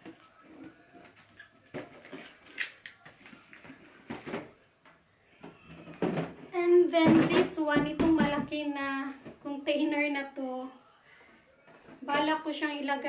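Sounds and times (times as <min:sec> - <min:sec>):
plastic containers clattering: 0:00.0 - 0:04.6, 0:05.4 - 0:08.6.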